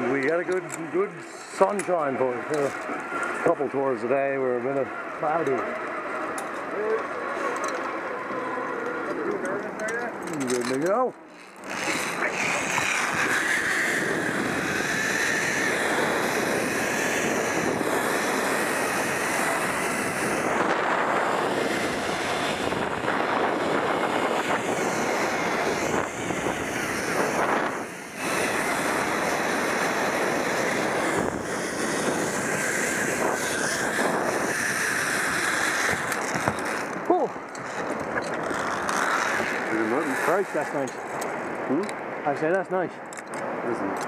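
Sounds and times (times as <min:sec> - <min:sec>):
zip-line pulleys whirring on cable: 0:00.0 - 0:41.9
wind buffeting microphone: 0:11.6 - 0:42.3.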